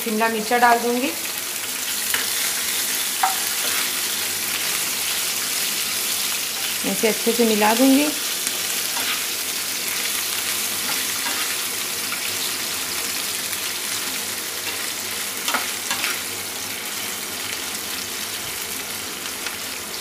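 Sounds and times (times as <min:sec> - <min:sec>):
vegetables sizzling in hot oil: 0:00.0 - 0:20.0.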